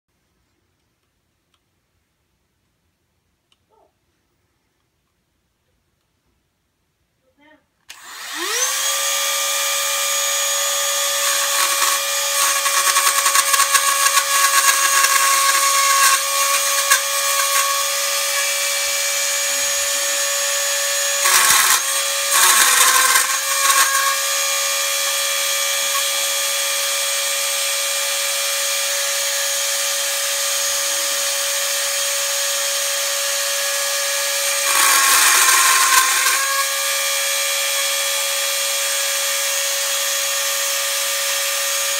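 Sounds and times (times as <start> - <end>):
cutting wheel grinding plastic: 7.9 - 28.0, 33.6 - 39.2
rotary tool high whine: 7.9 - 41.9.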